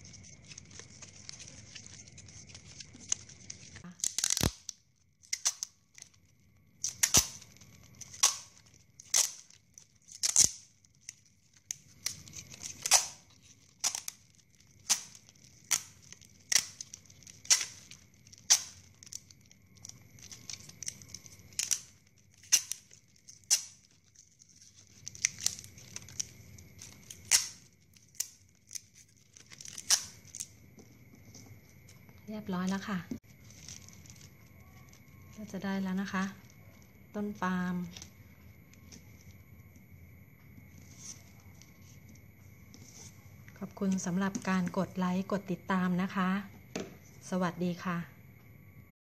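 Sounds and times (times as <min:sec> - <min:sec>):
adhesive tape peeling off roll: 0:00.0 - 0:06.2, 0:06.8 - 0:30.5.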